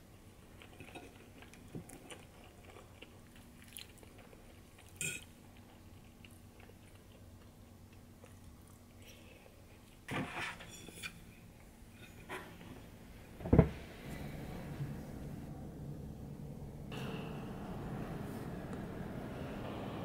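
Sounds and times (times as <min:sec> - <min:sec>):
low steady hum: 0:00.0 - 0:20.0
faint chewing: 0:00.4 - 0:10.1.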